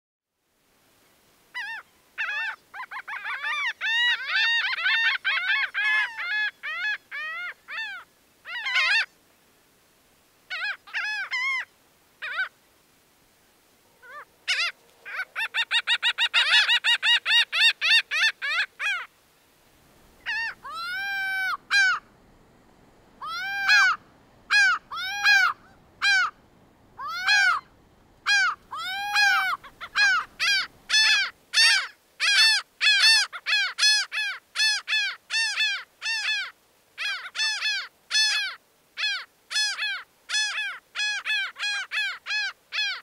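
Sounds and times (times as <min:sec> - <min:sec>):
gull laughing call: 0:20.2 - 0:22.1, 0:23.2 - 0:26.4, 0:27.0 - 0:27.7, 0:28.3 - 0:31.9.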